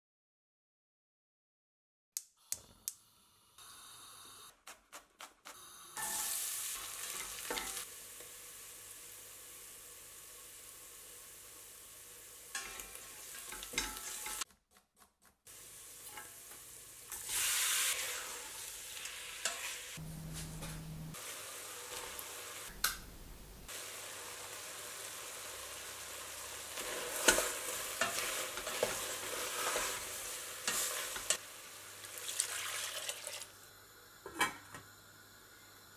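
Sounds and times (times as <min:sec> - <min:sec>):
food sizzling in hot oil: 0:05.9 - 0:14.4, 0:15.5 - 0:20.0, 0:21.1 - 0:22.8, 0:23.7 - 0:35.9
spatula scraping and knocking pot: 0:12.6 - 0:14.6, 0:26.8 - 0:31.4.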